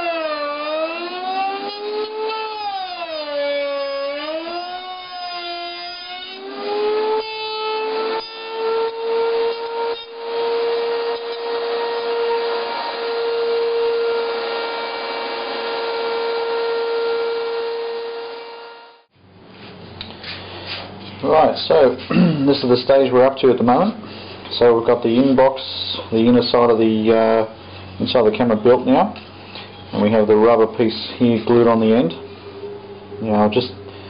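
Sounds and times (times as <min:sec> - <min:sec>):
router motor whine: 0:00.0 - 0:19.1.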